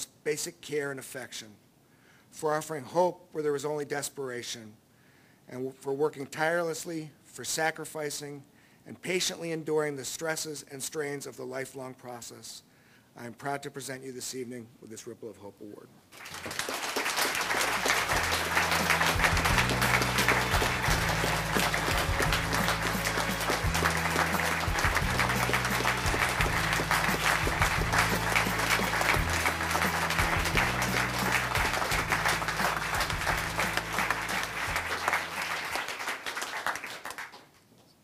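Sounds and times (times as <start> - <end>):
audience applauding: 16.1 - 37.6
music of sustained low notes: 18.0 - 35.6.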